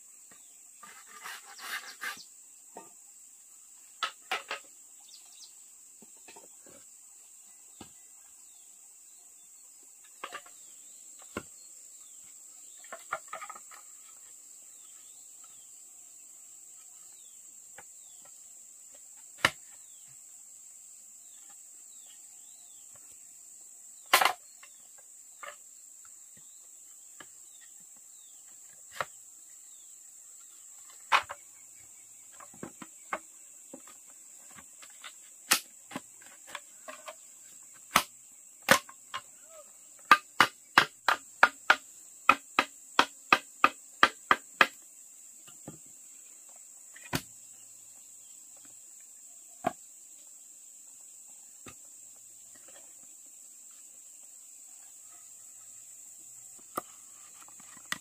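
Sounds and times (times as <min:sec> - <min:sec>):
insect drone: 0:00.0 - 0:58.0
tool striking wood: 0:40.1 - 0:44.8.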